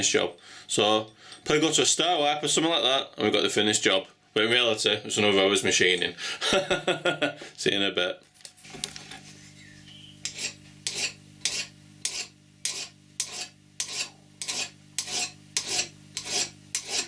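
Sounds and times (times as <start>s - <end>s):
file rasping on metal: 10.2s - 17.0s.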